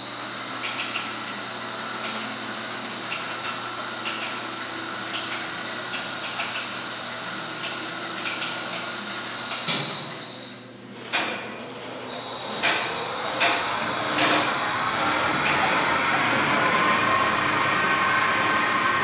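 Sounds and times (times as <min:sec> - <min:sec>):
roller conveyor whining: 0:11.5 - 0:19.0.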